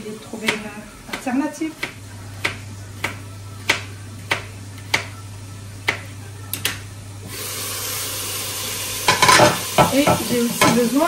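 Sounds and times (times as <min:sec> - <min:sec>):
knife chopping on cutting board: 0:00.4 - 0:05.1
sizzling of frying in oil: 0:07.3 - 0:11.0.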